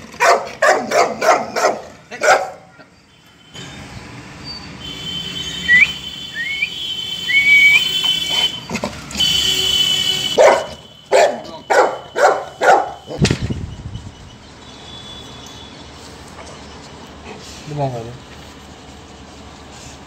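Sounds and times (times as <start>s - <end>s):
dog barking: 0.2s - 2.8s, 10.3s - 13.2s.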